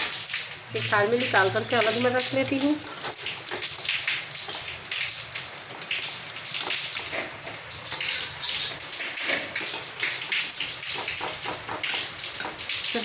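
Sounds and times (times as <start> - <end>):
water splashing and dripping: 0.0 - 13.0
skimmer knocking on pot: 9.6 - 13.0.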